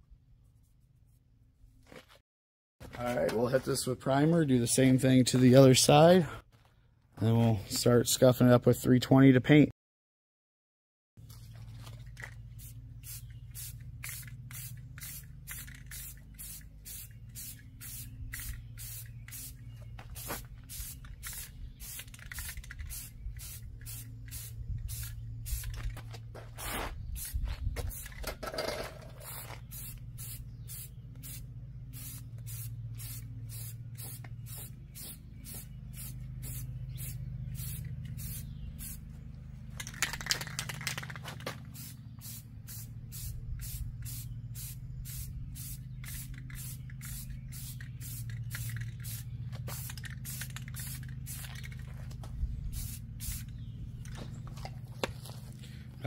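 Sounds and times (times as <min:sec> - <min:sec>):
low hum: 0:11.2 - 0:56.0
aerosol can spraying: 0:12.6 - 0:19.6, 0:41.0 - 0:51.7.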